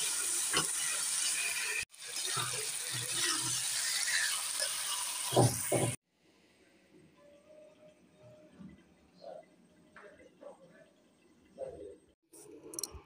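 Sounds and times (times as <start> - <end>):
curry sizzling in frying pan: 0.0 - 6.0.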